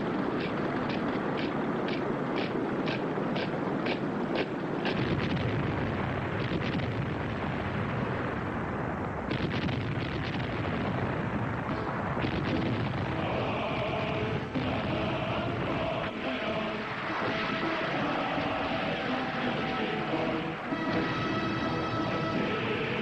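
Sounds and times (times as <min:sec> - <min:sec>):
explosions rumbling: 0:00.0 - 0:22.6
music with singing: 0:13.1 - 0:23.0.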